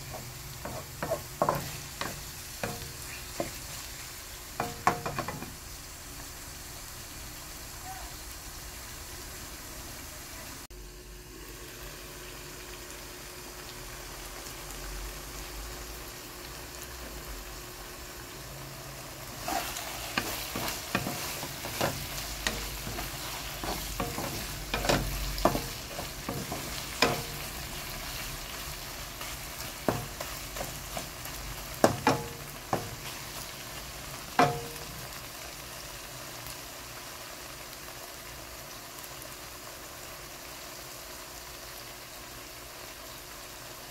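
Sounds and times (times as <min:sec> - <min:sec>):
wooden spatula scraping a pan: 0:00.0 - 0:04.0, 0:19.4 - 0:33.6
meat sizzling in a pan: 0:00.0 - 0:43.9.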